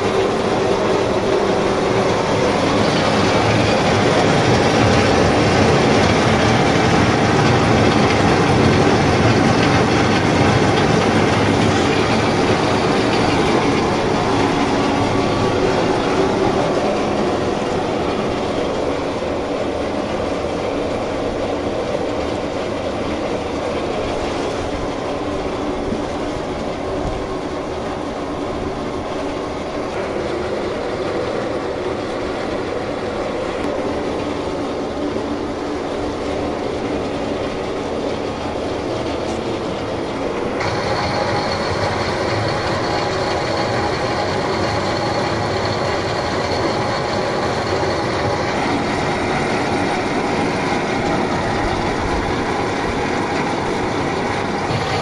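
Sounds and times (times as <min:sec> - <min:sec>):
rotary drum washer tumbling carrots: 0:00.0 - 0:55.0
thin high whine: 0:40.6 - 0:55.0.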